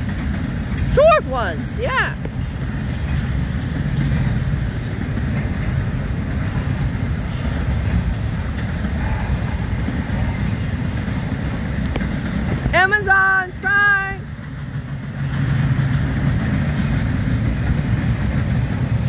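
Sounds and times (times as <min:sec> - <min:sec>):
freight train wheels rumbling on rail: 0:00.0 - 0:19.0
high wheel squeal: 0:04.2 - 0:11.3.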